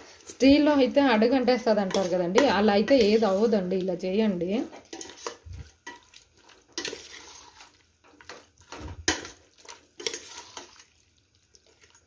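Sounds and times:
metal spoon scraping pot: 1.8 - 3.6, 4.8 - 6.0, 6.8 - 8.4, 10.0 - 10.8.

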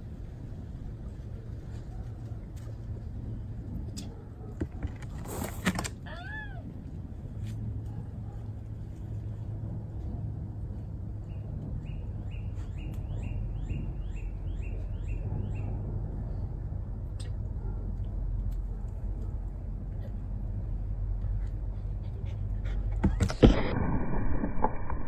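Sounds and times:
steady low hum: 6.6 - 25.0.

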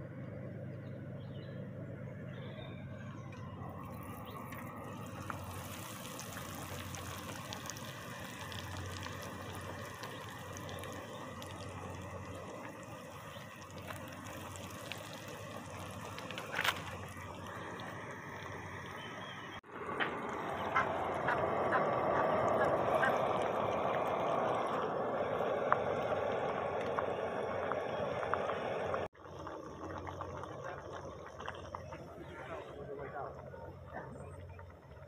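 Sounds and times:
meat sizzling in oil: 4.0 - 16.3.

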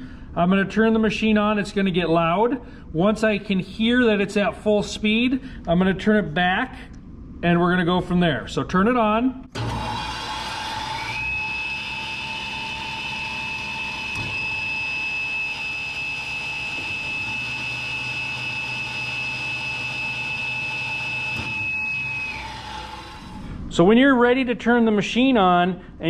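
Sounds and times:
saw motor whine: 9.6 - 23.6.

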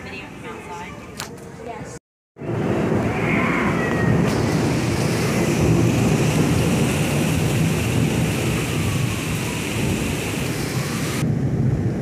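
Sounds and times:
heavy rain: 2.4 - 12.0
strong wind gusts on microphone: 2.4 - 12.0.

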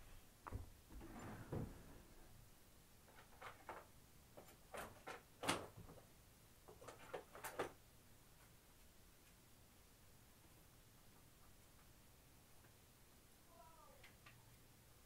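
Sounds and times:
faint clicks and knocks: 14.0 - 14.6.

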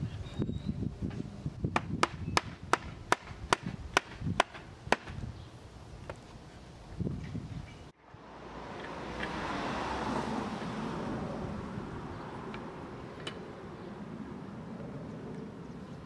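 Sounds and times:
car passing: 8.0 - 16.0.

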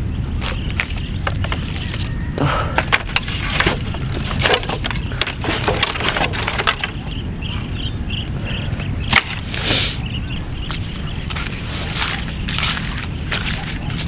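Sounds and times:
sticks clattering and cracking: 0.4 - 7.2, 9.1 - 9.8.

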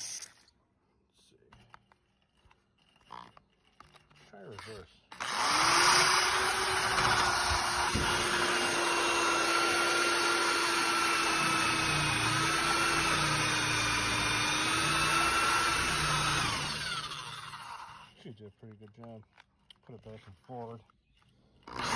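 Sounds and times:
wire wheel scraping rust: 1.9 - 7.2
electric drill motor whine: 5.1 - 18.2, 21.6 - 21.9.

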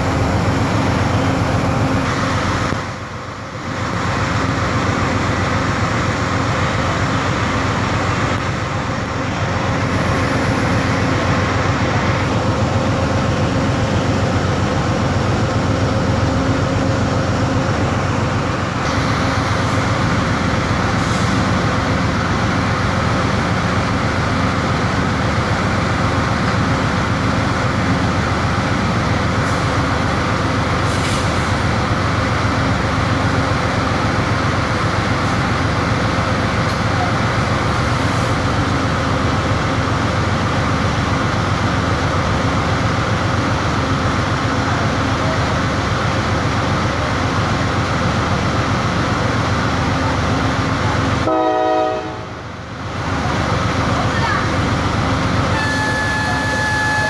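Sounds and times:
train equipment humming: 0.0 - 57.0.

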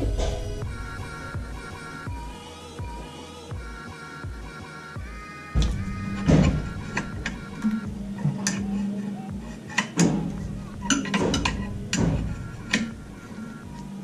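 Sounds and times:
background music: 0.0 - 14.0
spanner clinking on metal: 5.6 - 9.1, 9.7 - 13.9.

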